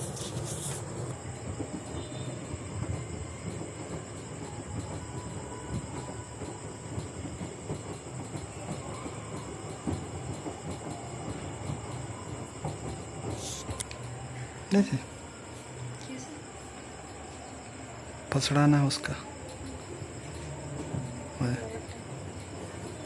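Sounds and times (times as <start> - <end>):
washing machine churning: 0.0 - 15.4.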